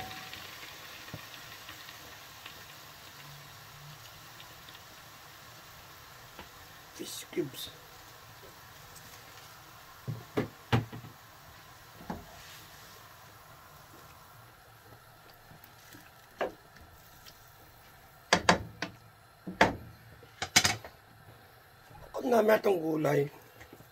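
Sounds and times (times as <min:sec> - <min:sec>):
wooden spatula knocking on wok: 0:18.3 - 0:19.8.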